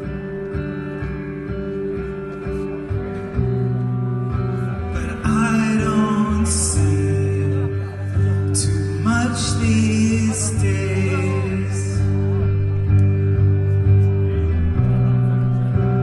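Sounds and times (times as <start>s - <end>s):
electric guitar chords: 0.0s - 16.0s
man singing: 4.9s - 12.7s.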